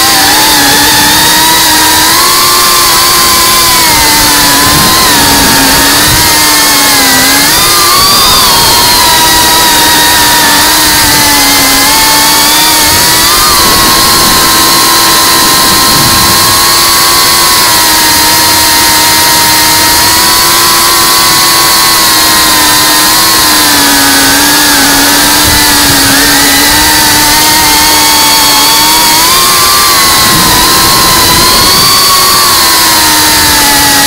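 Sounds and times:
quadcopter motors whining: 0.0 - 34.0.

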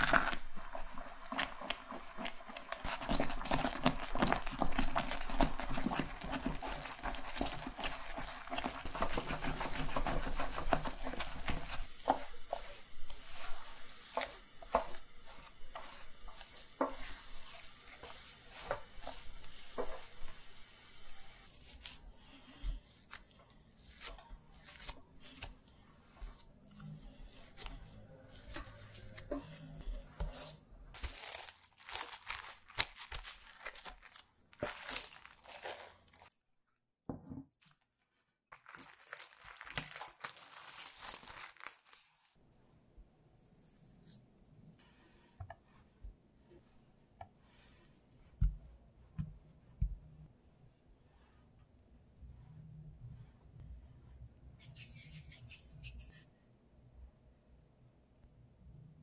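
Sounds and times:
spatula scraping and slapping paste: 0.0 - 20.5, 21.2 - 36.3
paste spluttering and sizzling: 0.0 - 25.5, 31.0 - 36.3.

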